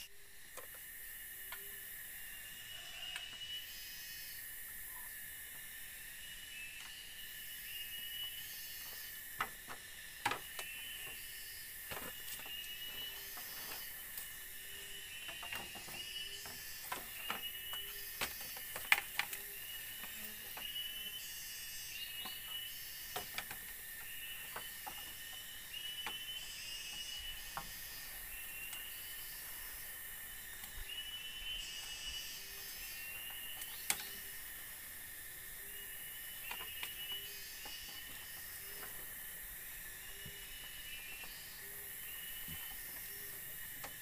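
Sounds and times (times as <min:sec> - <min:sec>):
forest insects droning: 0:00.0 - 0:44.0
short insect chirp: 0:00.0 - 0:44.0.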